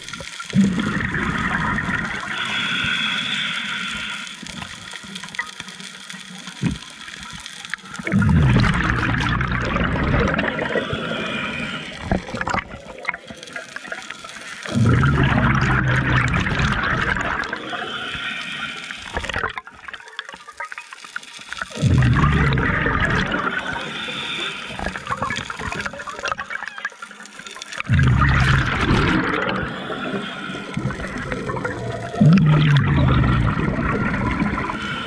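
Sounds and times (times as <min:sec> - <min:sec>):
diver exhaling bubbles: 0:00.0 - 0:03.0, 0:08.0 - 0:13.3, 0:14.6 - 0:19.6, 0:21.7 - 0:26.5, 0:27.8 - 0:35.0
hissing regulator inhalations: 0:01.8 - 0:05.4, 0:10.4 - 0:12.6, 0:17.5 - 0:19.3, 0:23.5 - 0:25.8, 0:28.2 - 0:33.6.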